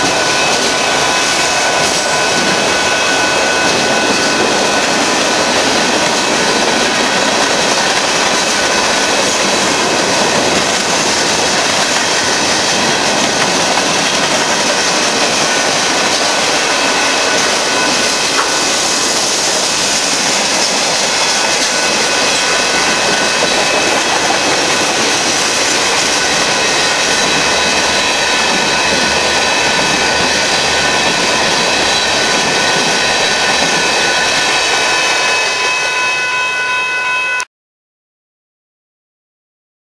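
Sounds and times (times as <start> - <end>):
train wheels roaring on rail: 0.0 - 37.5
high-pitched tones: 20.0 - 37.5.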